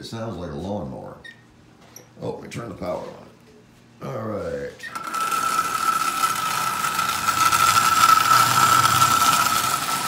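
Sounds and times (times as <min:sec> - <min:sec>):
toy train motor running: 0:04.9 - 0:10.0.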